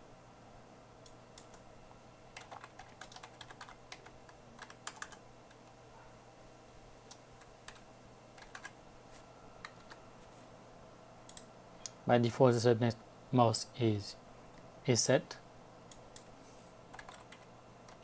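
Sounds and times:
keyboard typing: 0:02.4 - 0:05.6, 0:07.1 - 0:08.8, 0:09.6 - 0:10.0, 0:16.9 - 0:18.0.

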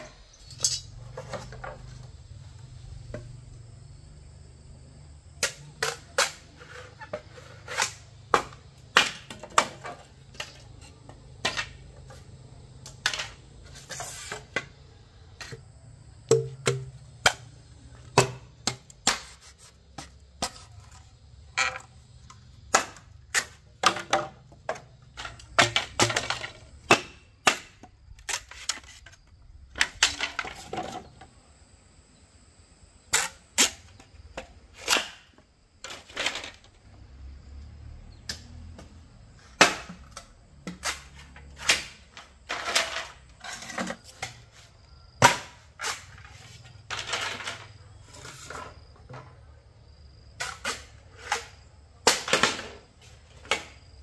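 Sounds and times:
bamboo being chopped: 0:07.7 - 0:09.8, 0:16.3 - 0:20.6, 0:22.7 - 0:24.8, 0:25.5 - 0:28.8, 0:34.8 - 0:35.3, 0:39.5 - 0:42.0, 0:45.2 - 0:46.1.

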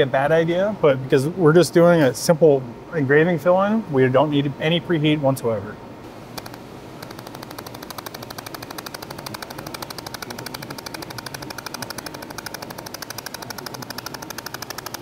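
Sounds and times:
laser welder clicking: 0:06.4 - 0:15.0.

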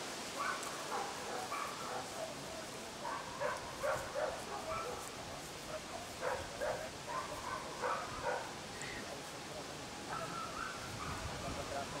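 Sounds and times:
dog barking: 0:00.4 - 0:05.1, 0:05.9 - 0:08.5, 0:10.1 - 0:11.3.

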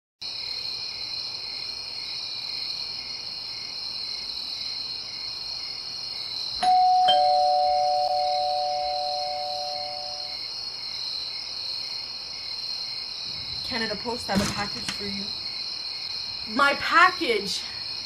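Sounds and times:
two-tone doorbell chime: 0:06.6 - 0:10.4
steady high-pitched whine: 0:06.7 - 0:10.4.

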